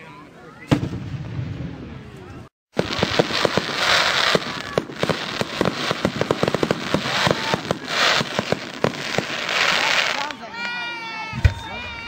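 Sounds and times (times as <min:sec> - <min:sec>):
fireworks crackling pops: 0:02.7 - 0:10.8
fireworks hiss: 0:02.8 - 0:10.4.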